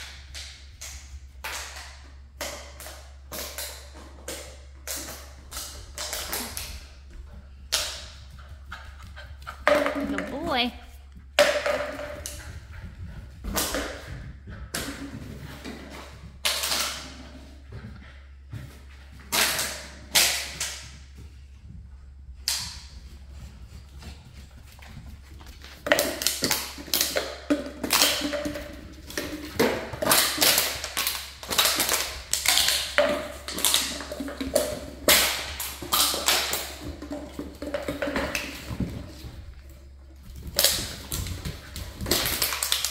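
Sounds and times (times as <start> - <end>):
plastic bottle crinkling: 40.4 - 42.9.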